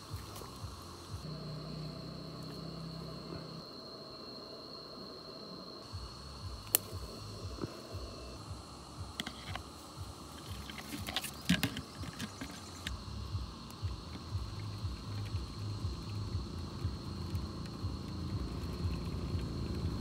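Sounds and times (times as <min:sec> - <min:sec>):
high-pitched insect drone: 0:00.0 - 0:20.0
low rumble: 0:05.8 - 0:10.9, 0:12.6 - 0:20.0.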